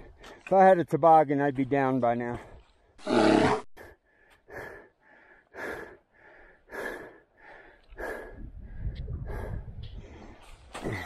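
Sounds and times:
person breathing heavily: 0.0 - 0.5, 3.7 - 11.0.

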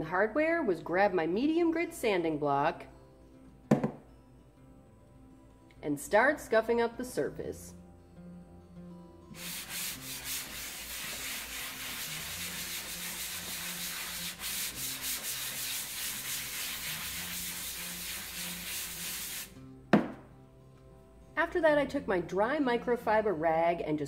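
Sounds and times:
sanding block rasping on surface: 9.4 - 19.5.

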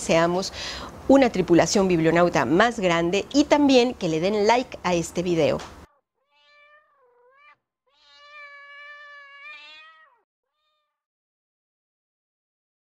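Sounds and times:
cat meowing: 5.9 - 11.0.

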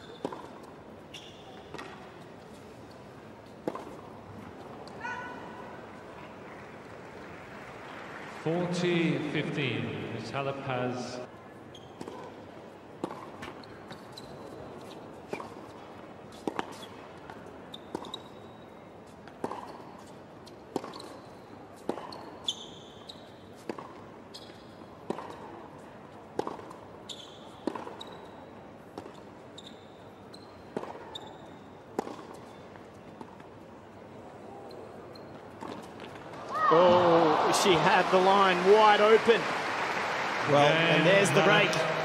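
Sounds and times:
tennis shoes squeaking: 0.0 - 6.7, 11.6 - 18.8, 19.4 - 25.6, 26.4 - 33.6, 34.4 - 36.8
tennis ball struck and bouncing: 0.2 - 0.7, 1.7 - 2.0, 3.6 - 4.1, 13.0 - 13.6, 30.7 - 31.1, 32.0 - 32.5.

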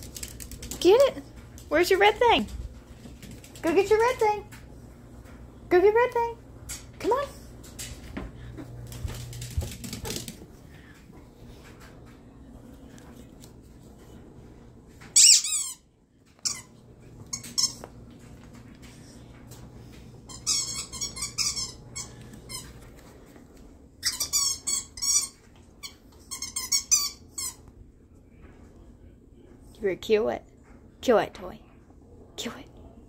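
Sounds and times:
squeaky dog toy squeaking: 15.2 - 15.8, 24.0 - 25.4, 26.3 - 27.6.

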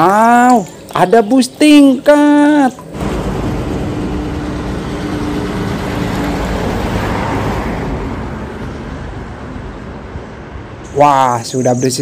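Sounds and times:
bus diesel engine passing: 2.9 - 11.0.

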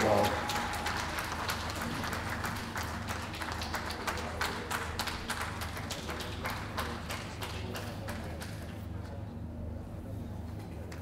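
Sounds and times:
spectators clapping: 0.0 - 8.8
steady low hum: 0.0 - 11.0.

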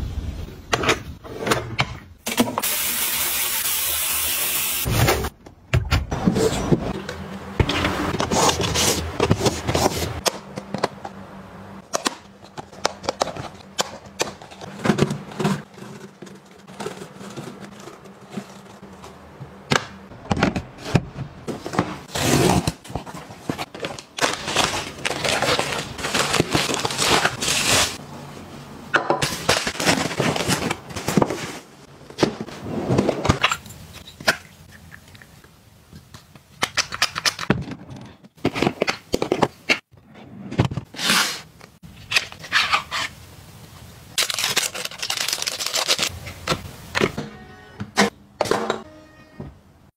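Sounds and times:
rustling and scraping: 6.2 - 10.8, 12.3 - 19.6, 29.4 - 33.4.

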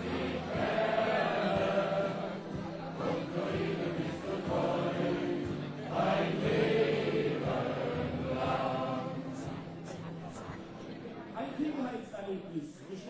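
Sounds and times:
men singing in unison: 0.0 - 9.6
music accompaniment: 0.0 - 11.2.

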